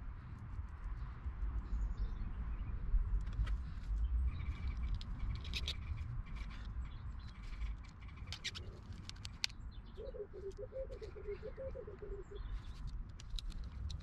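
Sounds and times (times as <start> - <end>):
plastic plug being handled: 8.3 - 9.5, 12.8 - 14.0.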